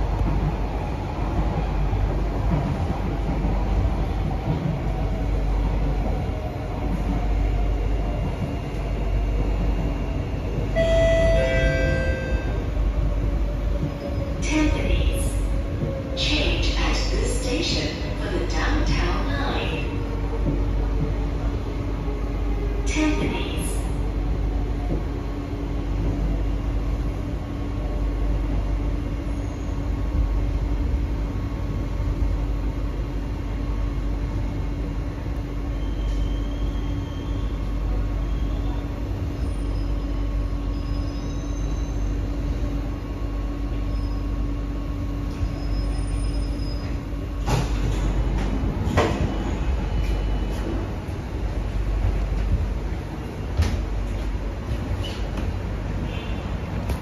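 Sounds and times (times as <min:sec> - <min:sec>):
metro train rumble: 0:00.0 - 0:57.0
faint high squeals: 0:35.7 - 0:37.6, 0:38.2 - 0:42.2, 0:45.3 - 0:47.0.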